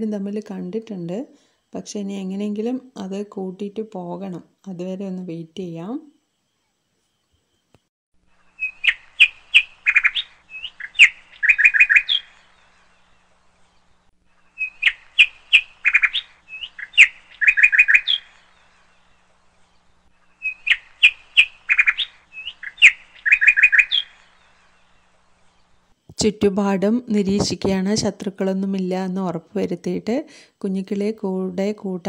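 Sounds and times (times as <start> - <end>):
bird chirps and trills: 8.4 - 26.3.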